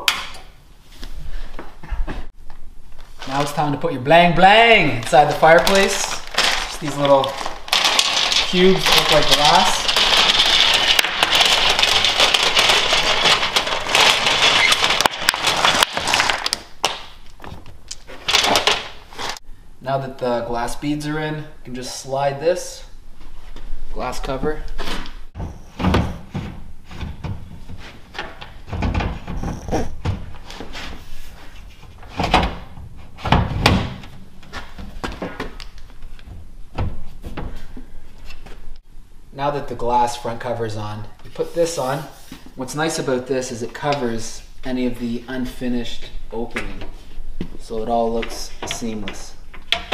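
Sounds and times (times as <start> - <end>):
plastic bag crinkling: 5.0 - 17.0.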